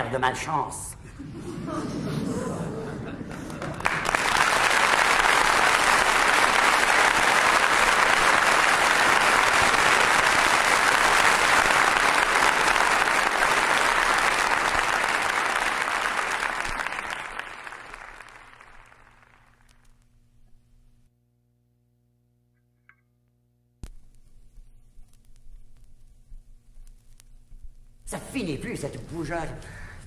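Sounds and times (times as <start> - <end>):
audience applauding: 3.0 - 19.8.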